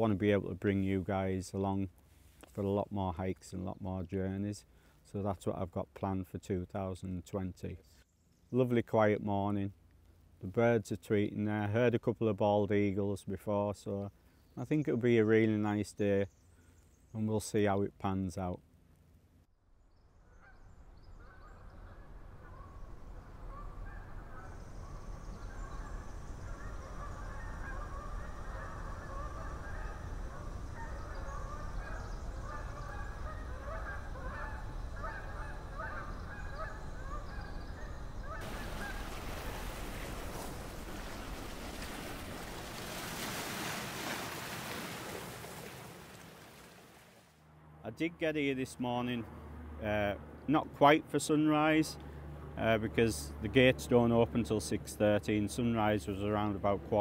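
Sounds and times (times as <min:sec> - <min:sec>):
flock of birds calling: 0:21.2 - 0:43.0.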